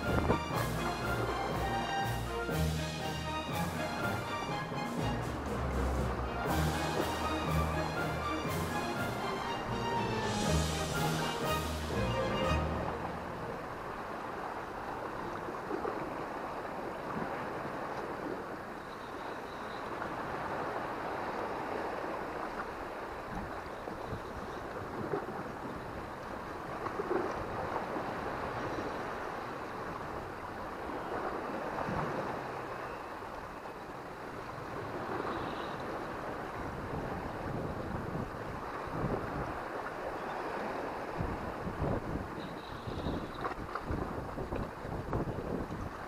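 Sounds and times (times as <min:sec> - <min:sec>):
wind on microphone: 0:00.0 - 0:01.6, 0:36.2 - 0:39.8, 0:40.5 - 0:46.0
surf washing over rocks: 0:00.0 - 0:18.8, 0:24.7 - 0:42.4.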